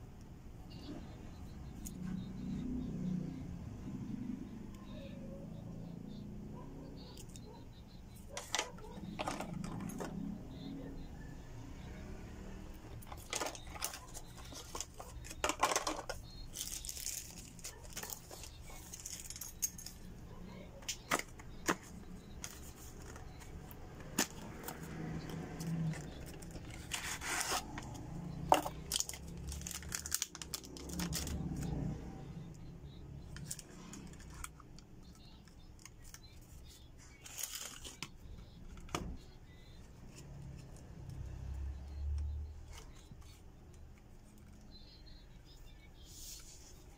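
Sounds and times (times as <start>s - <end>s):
plastic packaging crinkling: 13.0s - 20.0s, 28.5s - 31.5s, 37.2s - 38.1s.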